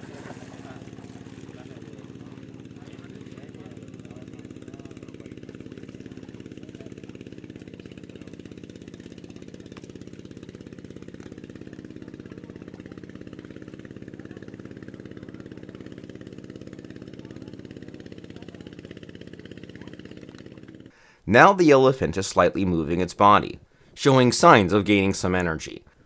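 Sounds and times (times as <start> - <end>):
small engine idling: 0.0 - 21.2.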